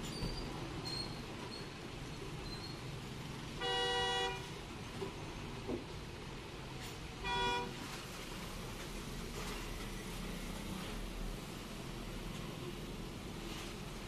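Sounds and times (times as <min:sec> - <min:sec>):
road traffic rumble: 0:00.0 - 0:14.0
vehicle horn honk: 0:03.6 - 0:04.5, 0:07.2 - 0:07.8.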